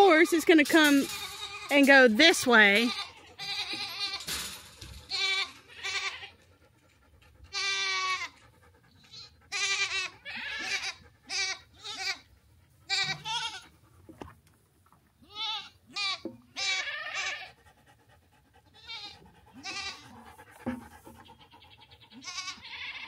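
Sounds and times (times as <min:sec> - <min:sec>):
goats bleating: 0:01.0 - 0:01.8, 0:02.6 - 0:04.3, 0:05.1 - 0:06.3, 0:07.5 - 0:08.4, 0:09.1 - 0:12.2, 0:12.9 - 0:13.7, 0:15.2 - 0:17.6, 0:18.8 - 0:20.2, 0:21.4 - 0:23.0.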